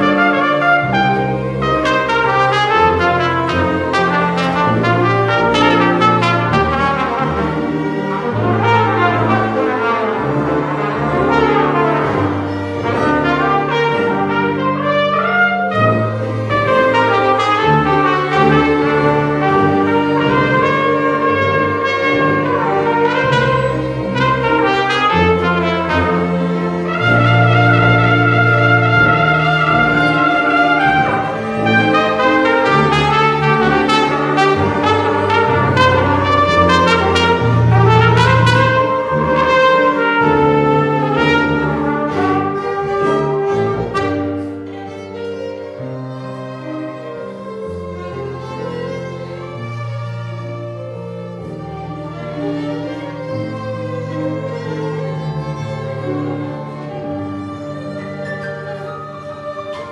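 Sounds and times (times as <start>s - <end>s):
held bass notes: 0.0s - 44.9s
trumpet melody: 0.0s - 59.9s
violins: 0.0s - 59.9s.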